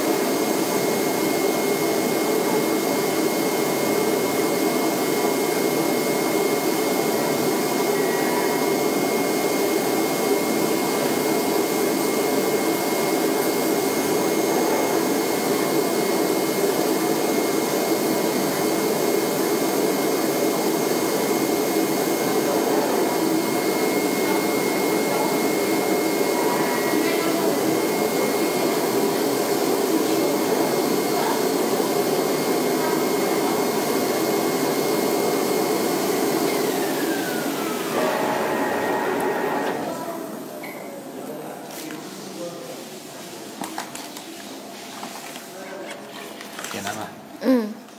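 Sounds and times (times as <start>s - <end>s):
blower rushing hum: 0.0s - 41.3s
thin high whine: 36.4s - 40.3s.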